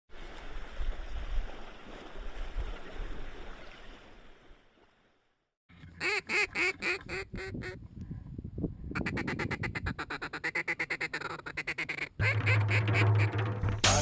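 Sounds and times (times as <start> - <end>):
loud duck quacks: 6.0 - 7.8, 9.0 - 13.4.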